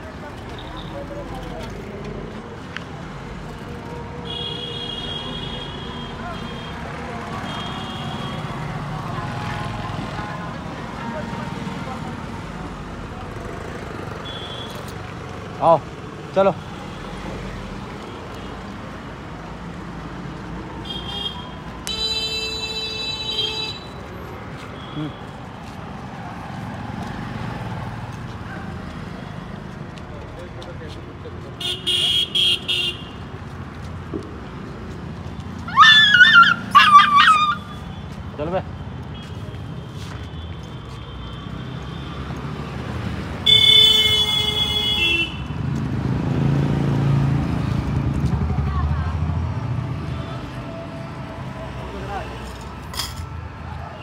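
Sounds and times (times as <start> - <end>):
street traffic: 0.0 - 54.0
vehicle horn honking: 4.3 - 6.8, 14.2 - 14.8, 20.8 - 24.0, 31.6 - 33.2, 43.4 - 45.5.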